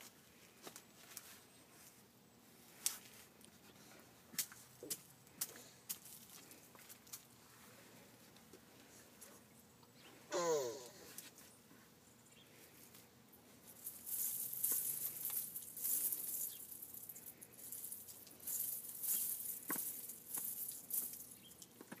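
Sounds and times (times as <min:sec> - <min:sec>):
hands rustling through dry soil: 0:00.0 - 0:09.5, 0:11.1 - 0:22.0
child's falling vocal sound: 0:10.3 - 0:11.2.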